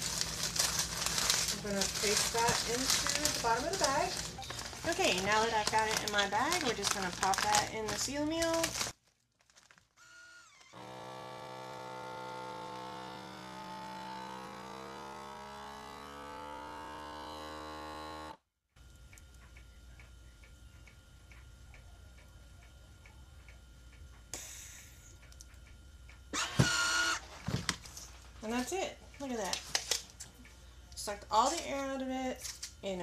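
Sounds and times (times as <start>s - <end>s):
vacuum sealer pump humming: 0.0s - 9.0s, 9.6s - 23.4s, 24.2s - 28.6s
soft regular ticking: 0.3s - 9.0s, 18.8s - 26.3s, 28.4s - 32.1s.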